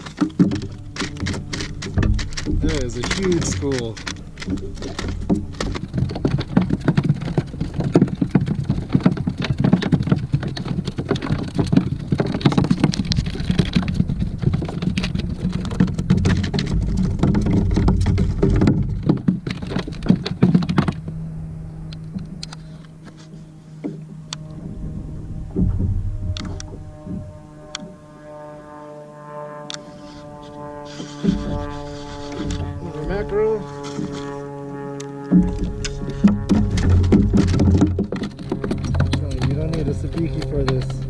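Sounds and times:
waves slapping kayak hull: 0.0s - 21.2s, 28.2s - 41.0s
steady low hum: 0.0s - 41.0s.

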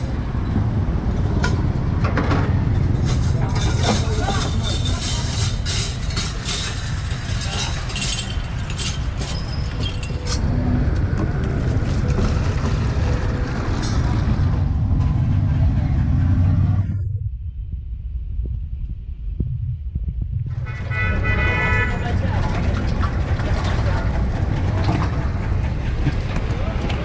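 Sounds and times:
street traffic rumble: 0.0s - 27.0s
metal skewers clattering: 3.0s - 10.4s.

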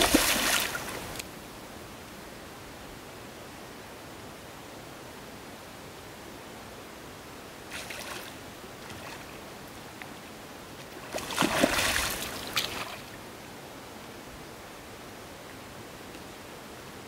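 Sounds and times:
fish splashing in water: 0.0s - 1.2s, 11.1s - 13.0s.

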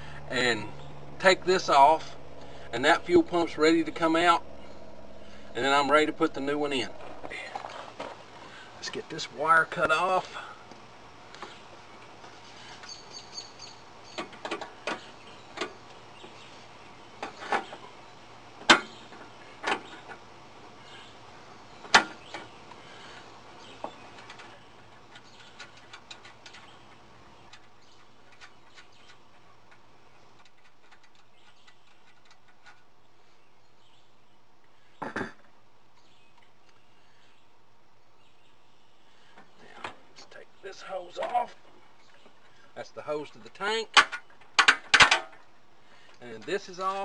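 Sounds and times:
hand tools clicking and snapping: 24.1s - 29.8s, 30.4s - 32.9s, 43.9s - 45.5s.

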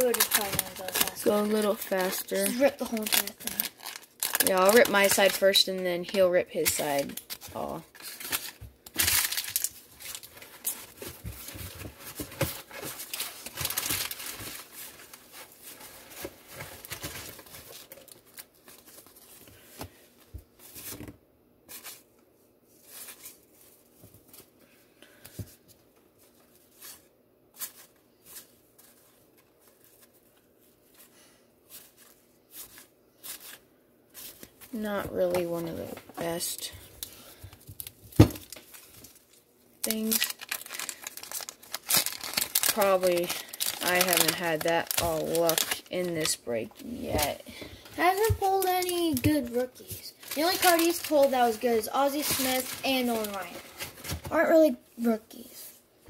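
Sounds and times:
wax paper wrappers ripping: 0.0s - 19.7s, 31.7s - 54.4s.

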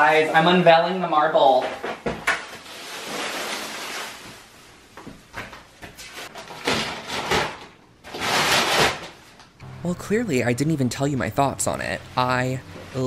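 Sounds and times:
plastic sheeting crinkling and ripping: 2.4s - 4.6s, 8.1s - 9.2s.

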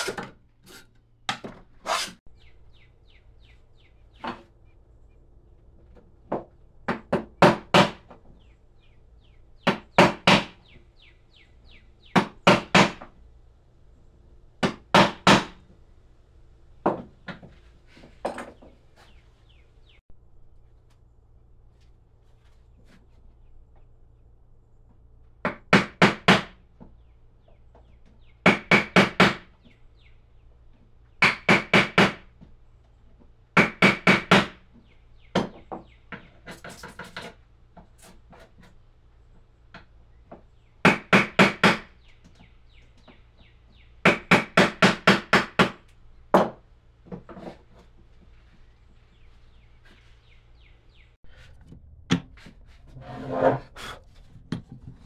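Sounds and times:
rubbing or scraping: 0.0s - 1.0s, 1.7s - 2.2s, 51.2s - 55.0s.

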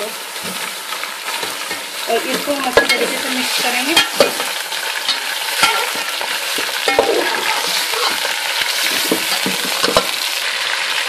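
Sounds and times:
meat sizzling in hot oil: 0.0s - 11.0s
metal spoon scraping pot: 1.3s - 8.3s.

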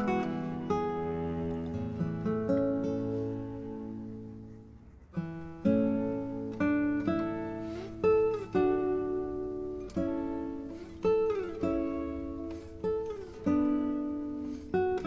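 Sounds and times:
acoustic guitar chords: 0.0s - 15.0s.

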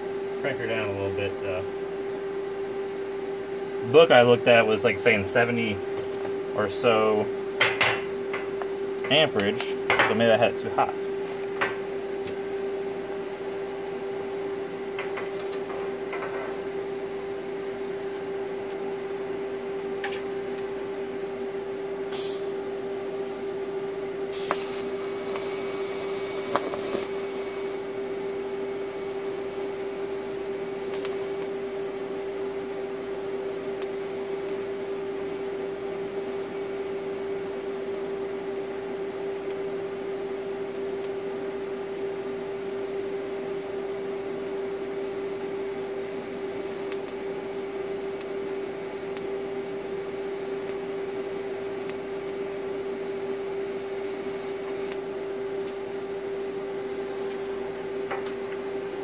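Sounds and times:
welding arc buzzing hum: 0.0s - 59.0s.

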